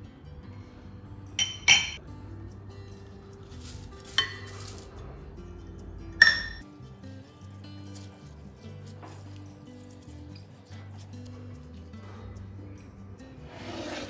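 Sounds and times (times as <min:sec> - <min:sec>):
metal cup clinking on glass bowl: 0:01.4 - 0:02.0, 0:04.1 - 0:04.8, 0:06.2 - 0:06.6.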